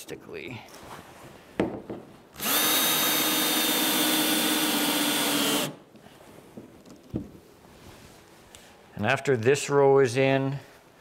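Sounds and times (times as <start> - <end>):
cordless drill drilling into plastic: 2.4 - 5.8.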